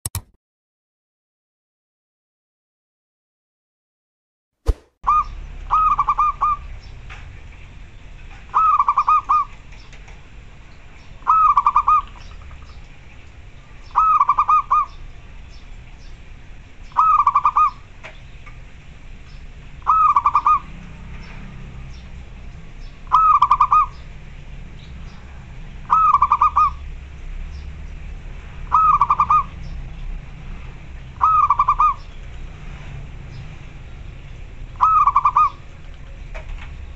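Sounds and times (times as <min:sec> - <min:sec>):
dove cooing: 0:05.1 - 0:06.6, 0:08.6 - 0:09.5, 0:11.3 - 0:12.1, 0:14.0 - 0:14.9, 0:19.9 - 0:20.7, 0:23.1 - 0:24.0, 0:25.9 - 0:26.8, 0:28.7 - 0:29.5, 0:31.2 - 0:32.0, 0:34.8 - 0:35.6.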